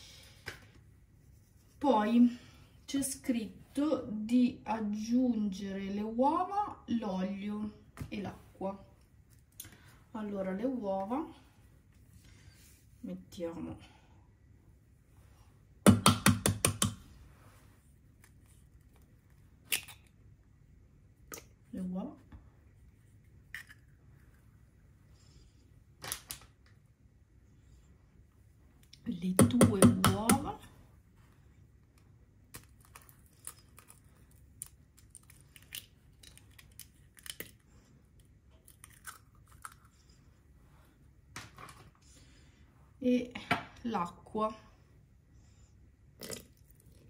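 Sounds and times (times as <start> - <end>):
egg tapping on metal bowl: 29.4 - 30.5
eggshell crackling: 32.4 - 39.9.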